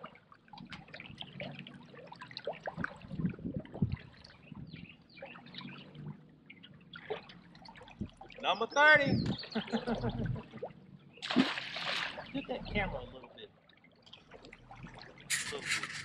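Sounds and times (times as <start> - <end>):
water lapping against boat: 0.0 - 16.0
light splashes and knocks: 10.6 - 12.4.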